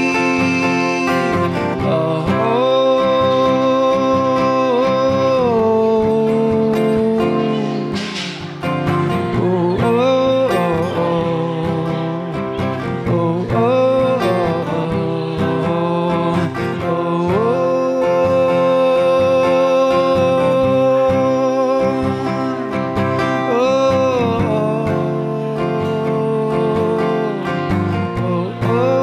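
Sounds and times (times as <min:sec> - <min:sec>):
man singing: 0:00.0 - 0:29.0
strummed acoustic guitar: 0:00.0 - 0:29.0.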